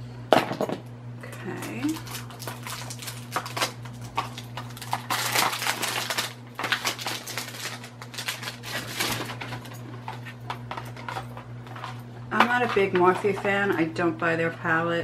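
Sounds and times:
brushes and packaging rustling: 0:01.7 - 0:13.6.

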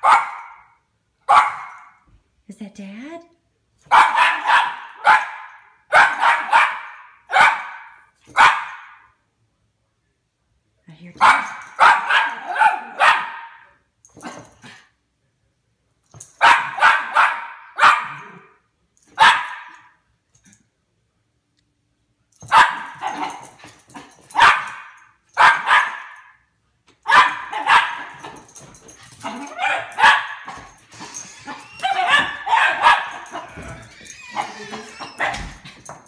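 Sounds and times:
small dog barking and yipping: 0:00.0 - 0:00.6, 0:01.3 - 0:02.0, 0:03.8 - 0:09.0, 0:11.2 - 0:14.5, 0:16.2 - 0:19.9, 0:22.4 - 0:26.4, 0:27.0 - 0:36.0.

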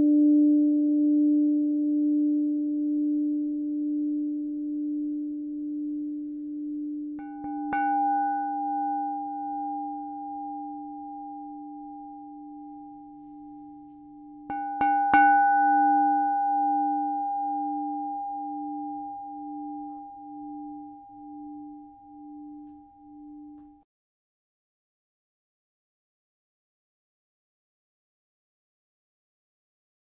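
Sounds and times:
singing bowl ringing: 0:04.9 - 0:23.8.

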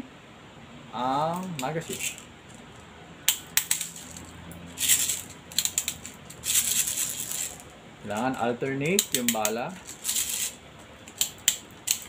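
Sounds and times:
plastic pellets rattling: 0:01.3 - 0:12.0
sharp plastic clicks: 0:08.9 - 0:09.6, 0:11.0 - 0:12.0.

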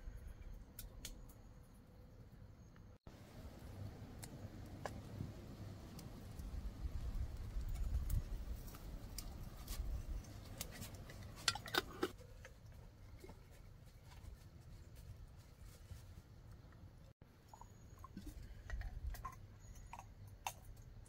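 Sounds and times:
campfire crackling: 0:03.0 - 0:13.4.

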